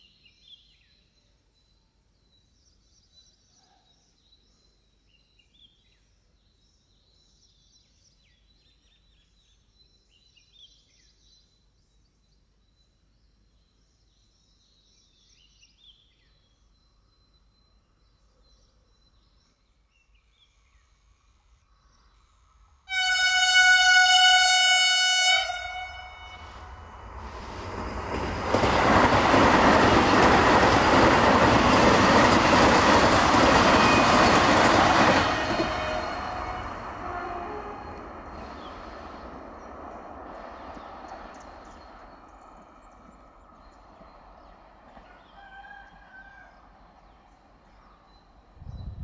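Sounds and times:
train horn blast: 22.9 - 27.0, 35.1 - 38.6
train wheels rushing on rails: 26.2 - 45.1.

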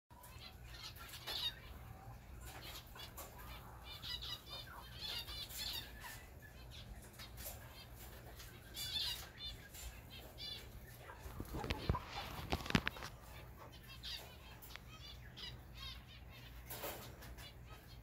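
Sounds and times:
wing flutters: 11.1 - 13.5.

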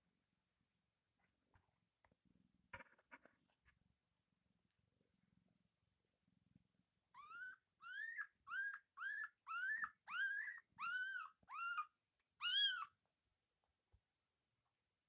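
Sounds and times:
kittens mewing: 7.2 - 12.9.

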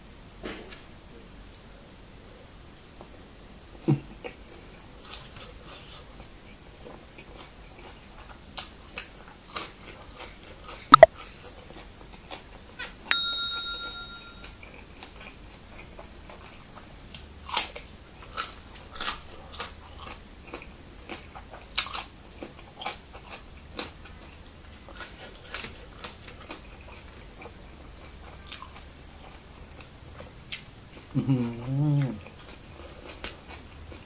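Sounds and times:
man chewing and crunching: 4.1 - 12.9, 14.5 - 34.0
bright ding: 13.1 - 14.6.

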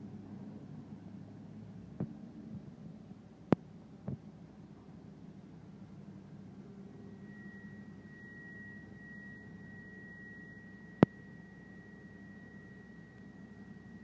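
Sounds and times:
heavy machinery humming: 4.4 - 14.0
high-pitched tone: 6.6 - 14.0.

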